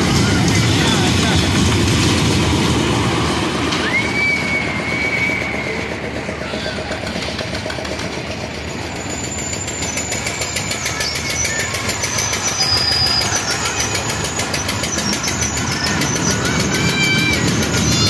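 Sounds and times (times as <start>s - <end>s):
toy train rumbling on track: 0.0s - 18.0s
thin high squeals: 8.8s - 18.0s.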